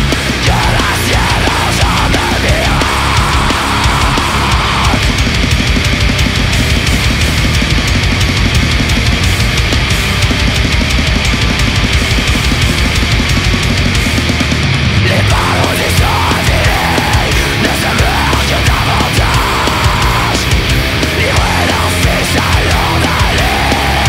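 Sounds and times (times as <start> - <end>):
distorted guitars and bass: 0.0 - 24.0
rapid drumming: 0.0 - 24.0.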